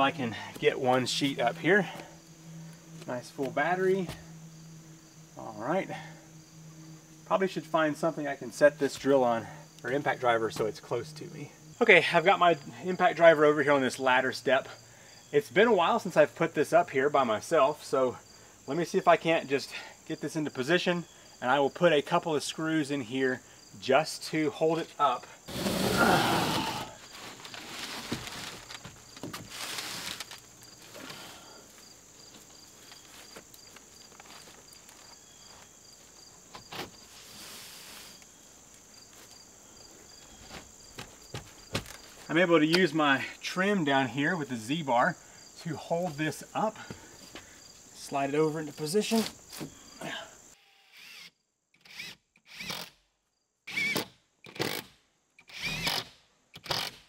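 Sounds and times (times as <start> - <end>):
footsteps: 0.0 - 4.5, 8.8 - 11.2, 26.6 - 39.4, 40.0 - 42.3
insects chirping: 0.0 - 57.0
board scraping against wall: 25.5 - 30.4
impact driver driving screws: 53.8 - 57.0.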